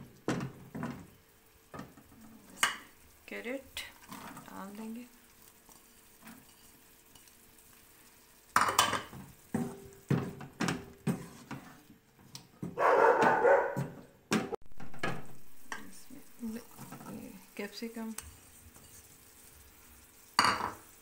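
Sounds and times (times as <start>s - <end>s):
wooden spatula scraping a wok: 3.7s - 8.2s, 9.0s - 12.3s, 15.8s - 21.0s.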